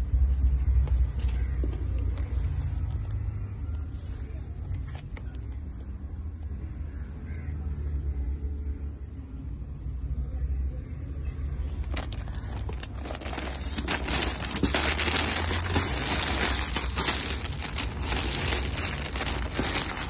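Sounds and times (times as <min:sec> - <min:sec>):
steady low rumble: 0:08.1 - 0:20.0
plastic bags crinkling: 0:11.8 - 0:20.0.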